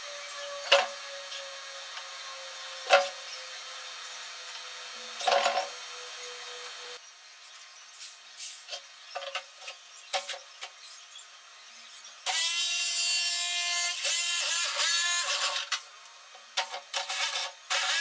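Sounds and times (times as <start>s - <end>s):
electric jigsaw whining: 13.4s - 15.9s, 17.0s - 18.0s.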